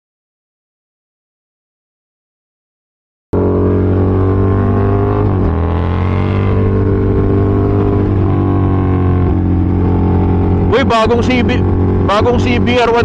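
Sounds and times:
motorcycle engine running: 0:03.4 - 0:13.0.

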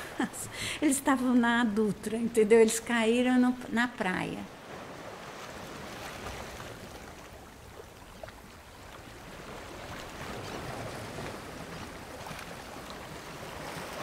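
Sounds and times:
sea waves washing against shore: 0:04.5 - 0:14.0.

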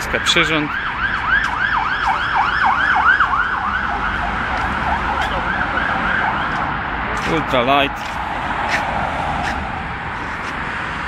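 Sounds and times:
road traffic rumble: 0:00.0 - 0:11.0
emergency siren yelping: 0:00.2 - 0:07.0.

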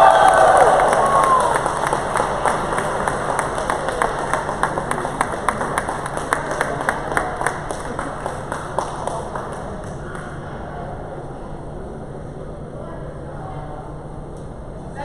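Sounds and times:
crowd hand clapping: 0:00.0 - 0:10.5
low background hum: 0:00.0 - 0:15.0.

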